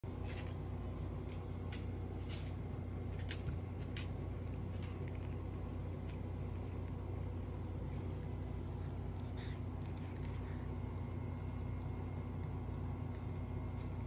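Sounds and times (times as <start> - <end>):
low room hum: 0.0 - 14.0
cat licking treat packet: 3.8 - 14.0.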